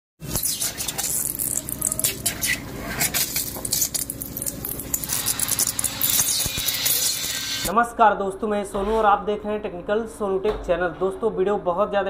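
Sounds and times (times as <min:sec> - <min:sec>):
water spraying from pipe: 0:00.2 - 0:07.7.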